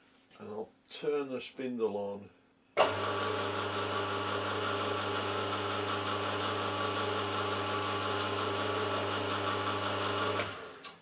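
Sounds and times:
milling machine spindle humming: 2.8s - 10.9s.

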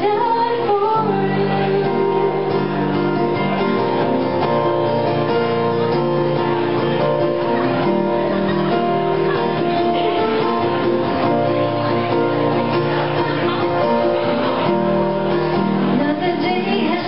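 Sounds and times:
woman singing: 0.0s - 2.7s, 15.9s - 17.0s
acoustic guitar strumming: 0.0s - 17.0s.

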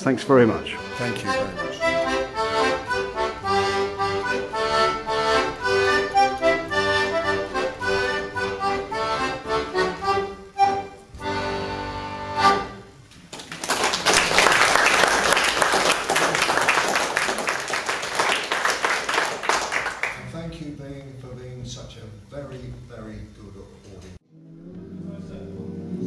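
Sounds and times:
audience applauding: 13.2s - 20.2s.

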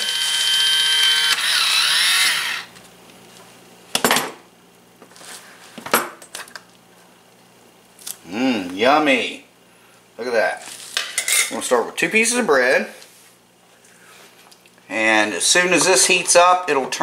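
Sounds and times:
electric can opener whirring: 0.0s - 2.8s.

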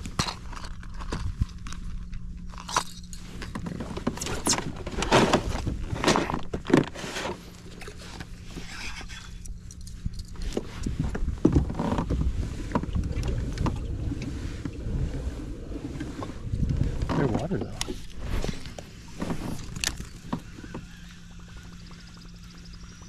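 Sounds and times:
faint steady hum: 0.0s - 23.0s
low rumble: 9.2s - 23.0s
water splashing: 12.2s - 21.2s.

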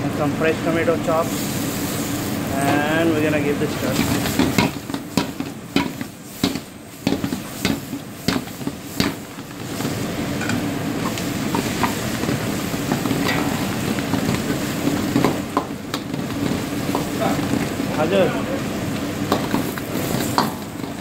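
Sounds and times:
food sizzling: 0.0s - 21.0s
spatula scraping a wok: 3.8s - 17.2s.

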